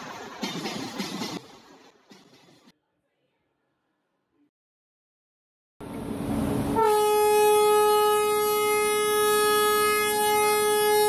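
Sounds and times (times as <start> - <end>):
train rolling: 0.0 - 2.7
train horn long note: 6.7 - 11.0.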